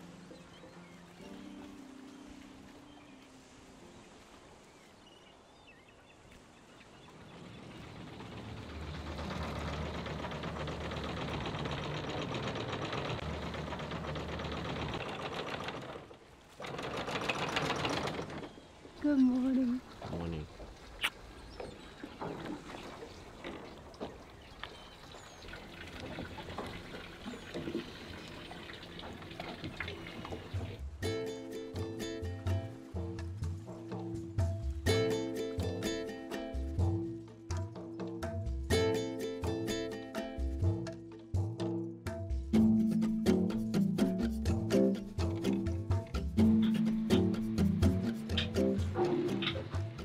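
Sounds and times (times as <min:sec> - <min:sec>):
water lapping against hull: 0:00.0 - 0:37.7, 0:43.7 - 0:50.0
engine running: 0:07.2 - 0:18.6, 0:42.6 - 0:50.0.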